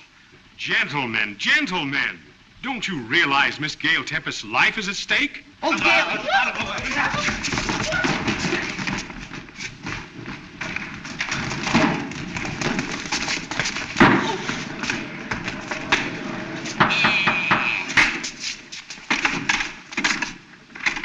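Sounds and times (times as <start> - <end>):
hurried footsteps: 5.7 - 20.3
thumps and knocks: 16.7 - 18.3.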